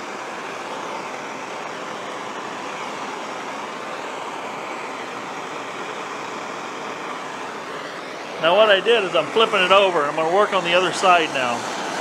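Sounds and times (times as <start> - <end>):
gas torch flame hissing: 0.0 - 12.0.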